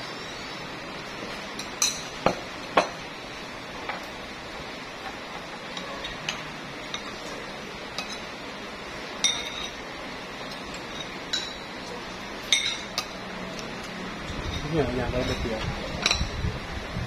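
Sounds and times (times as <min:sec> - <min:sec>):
steady background hum: 0:00.0 - 0:17.0
cutlery clinking on ceramic plate: 0:09.2 - 0:09.8, 0:12.5 - 0:13.2, 0:16.0 - 0:16.3.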